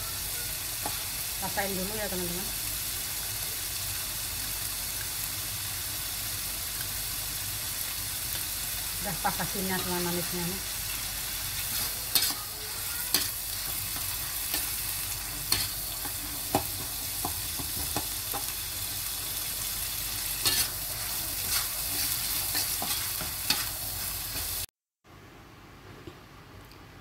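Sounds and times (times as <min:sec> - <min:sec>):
sambal sizzling in a wok: 0:00.0 - 0:24.7
spatula scraping a wok: 0:09.8 - 0:17.3, 0:19.9 - 0:24.7.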